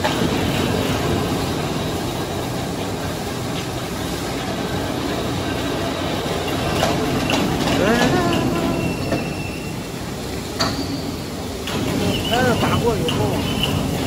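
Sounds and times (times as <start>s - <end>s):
crane rumbling and rattling: 0.0s - 14.0s.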